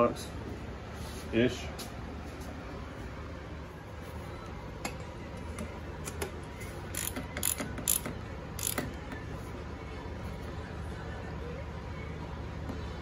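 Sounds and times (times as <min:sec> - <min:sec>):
ratchet clicking: 0:06.9 - 0:09.0.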